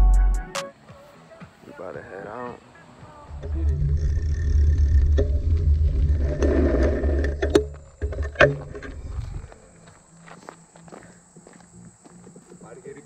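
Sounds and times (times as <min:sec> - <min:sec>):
gravel crunching: 0:02.1 - 0:13.0
wind and ride rumble: 0:02.5 - 0:10.0.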